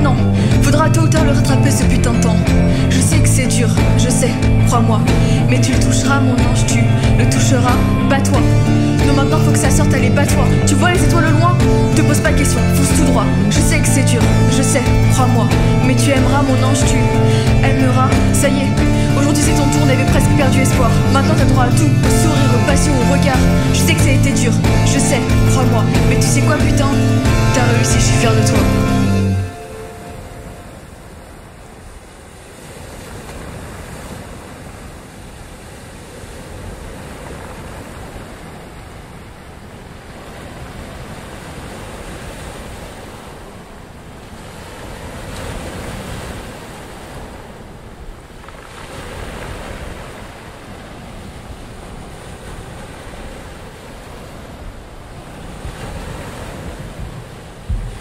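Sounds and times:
steady rushing noise: 54.5s - 58.0s.

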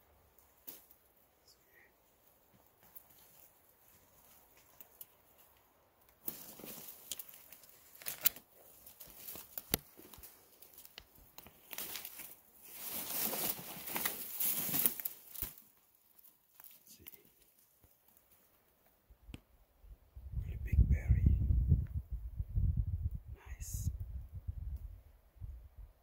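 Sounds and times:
leaves and twigs rustling: 0.1s - 19.1s
twigs snapping: 4.3s - 18.3s.

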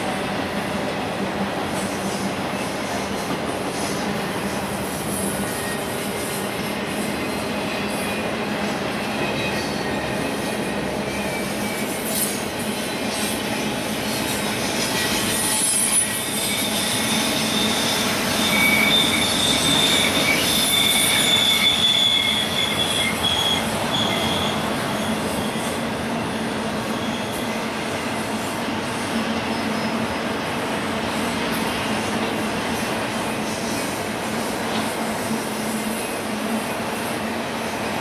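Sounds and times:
train wheels rumbling on rail: 0.0s - 38.0s
high-pitched wheel squeal: 1.8s - 28.0s.

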